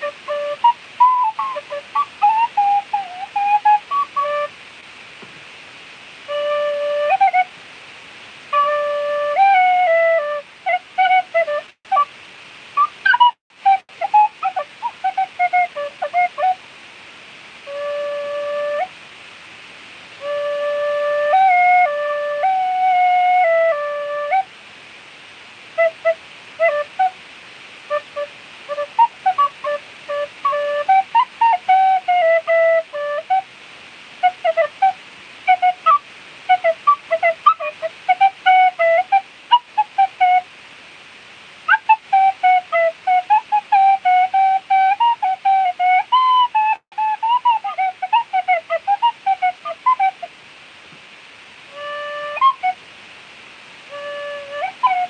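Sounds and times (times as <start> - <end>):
tin whistle melody: 0.0 - 4.5, 6.3 - 7.5, 8.5 - 12.1, 12.8 - 16.6, 17.7 - 18.9, 20.2 - 24.5, 25.8 - 27.2, 27.9 - 33.5, 34.2 - 40.5, 41.7 - 50.3, 51.7 - 52.8, 53.9 - 55.0.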